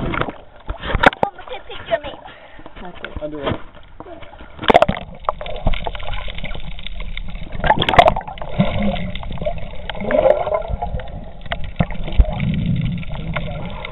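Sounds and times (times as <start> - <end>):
muffled underwater rush: 3.7 - 13.9
gurgling bubbles: 4.3 - 13.9.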